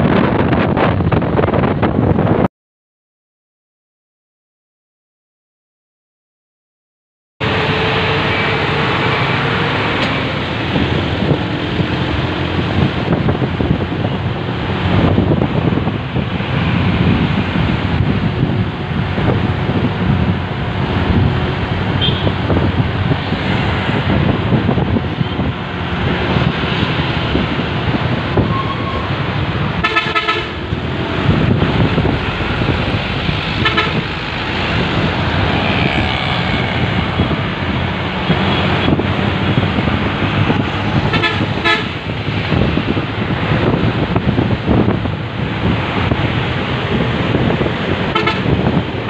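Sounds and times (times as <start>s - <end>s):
road noise: 0.0s - 2.5s, 7.4s - 49.0s
road traffic: 0.0s - 2.5s, 7.4s - 49.0s
wind rushing: 0.0s - 2.5s, 7.4s - 49.0s
vehicle horns honking: 22.0s - 22.4s, 29.8s - 30.6s, 33.5s - 34.2s, 41.1s - 42.0s, 48.1s - 48.7s.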